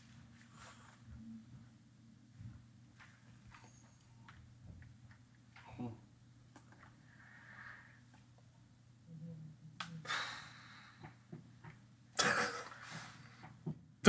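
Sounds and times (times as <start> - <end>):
soft breath-like noises: 0.3 - 1.7, 6.8 - 8.4, 9.0 - 11.6.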